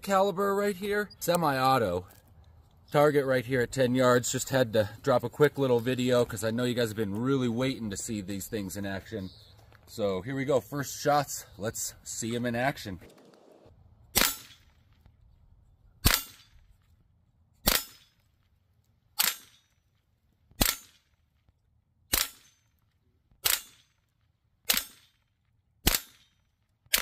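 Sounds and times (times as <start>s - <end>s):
air pistol shots: 14.2s - 14.6s, 16.0s - 16.5s, 17.6s - 18.0s, 20.6s - 21.0s, 22.1s - 22.5s, 23.4s - 23.8s, 24.7s - 25.2s, 25.8s - 26.3s.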